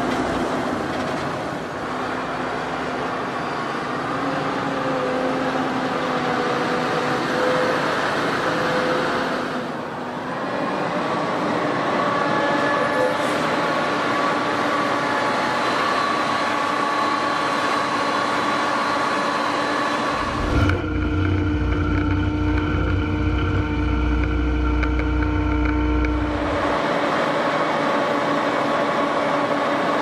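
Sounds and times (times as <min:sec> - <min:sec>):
deep engine drone: 0:19.6 - 0:29.6
tractor engine running: 0:20.1 - 0:27.0.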